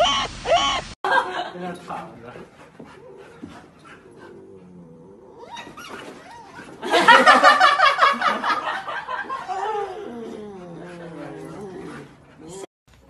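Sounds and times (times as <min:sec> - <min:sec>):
puppy whining: 0:02.9 - 0:06.9
puppy growly yowling: 0:03.0 - 0:06.8, 0:09.4 - 0:12.7.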